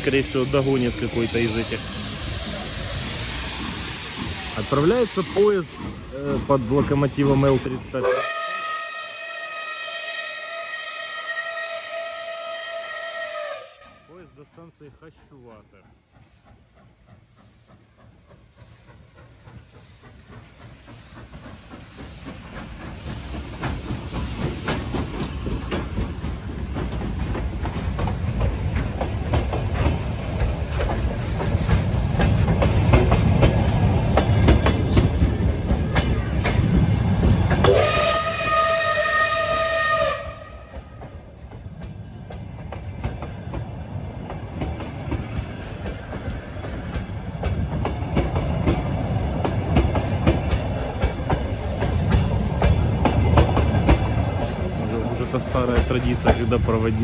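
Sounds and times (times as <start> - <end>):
train wheels clickety-clack: 0.0 - 8.4, 13.5 - 57.0
steam whistle blowing: 8.0 - 14.0, 37.6 - 40.6
train carriages clattering: 14.5 - 57.0.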